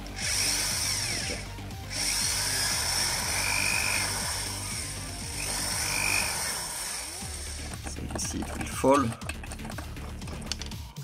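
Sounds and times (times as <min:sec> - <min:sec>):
cordless drill whining: 0:00.0 - 0:07.9.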